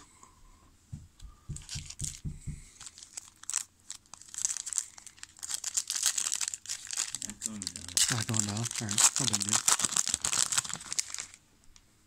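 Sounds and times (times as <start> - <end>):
soft low thumps: 0.9 - 2.8
card pack wrapper crinkling: 2.8 - 11.4.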